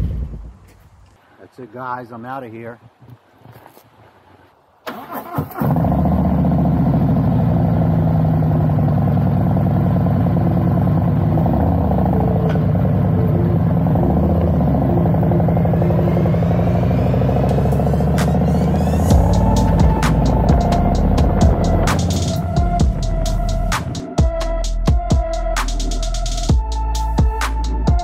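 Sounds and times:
motorcycle engine idling: 6.4s - 24.0s.

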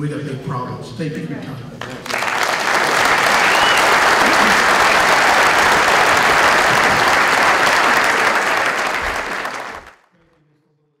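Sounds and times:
audience applauding: 1.8s - 10.1s.

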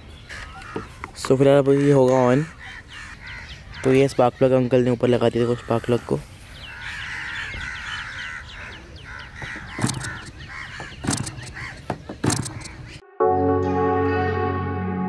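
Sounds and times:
birds calling: 0.0s - 13.0s
model engine flicked over knocks: 9.4s - 12.8s
soft ambient music: 13.0s - 15.0s.

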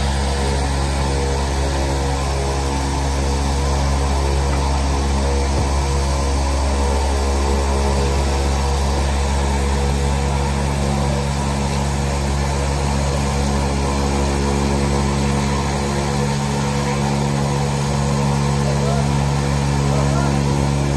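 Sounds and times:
turboprop engine idling: 0.0s - 20.9s.

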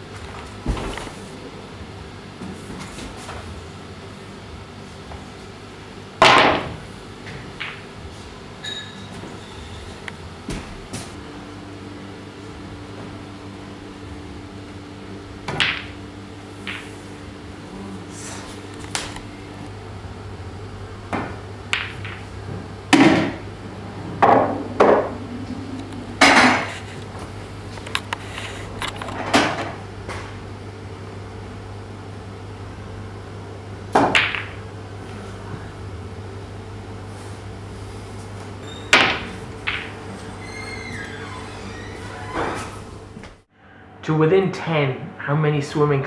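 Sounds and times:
steady low hum: 0.0s - 46.0s
cue striking ball: 6.2s - 7.9s, 15.4s - 17.0s, 21.1s - 23.5s, 24.2s - 26.7s, 33.9s - 34.6s, 38.9s - 40.2s
pool balls clacking: 6.2s - 8.0s, 15.4s - 16.0s, 16.6s - 17.0s, 21.1s - 23.5s, 24.1s - 30.3s, 33.9s - 34.6s, 38.9s - 40.4s.

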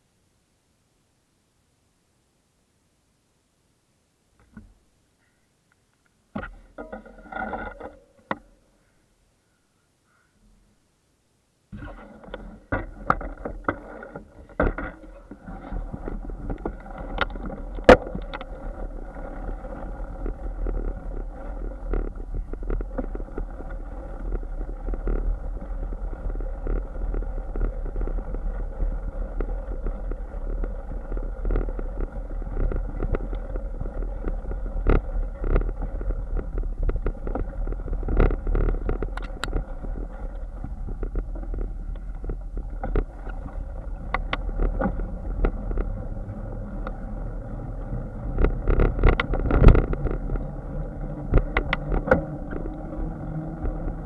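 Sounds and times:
bike rattling over bumps: 11.8s - 54.0s
tyres rumbling on rough ground: 11.8s - 54.0s.

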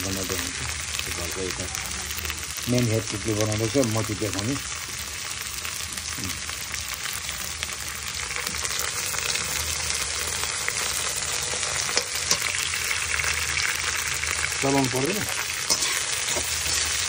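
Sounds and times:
vegetables sizzling in hot oil: 0.0s - 17.0s
metal spoon scraping a wok: 10.8s - 12.8s, 15.2s - 17.0s.

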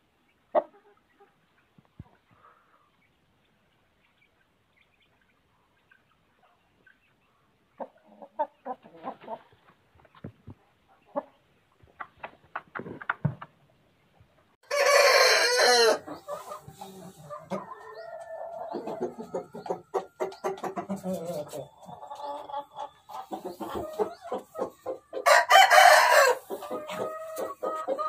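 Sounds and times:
chickens clucking: 0.3s - 28.0s
rooster crowing: 14.6s - 16.1s, 25.2s - 26.5s.

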